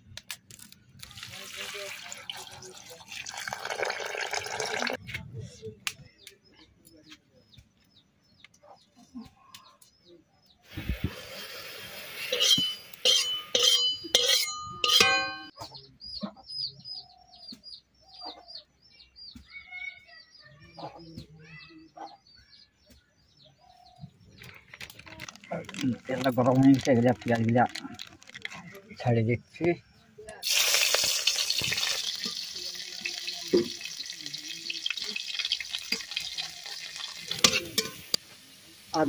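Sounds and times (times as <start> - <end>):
small bird chirping: 15.5 - 30.4.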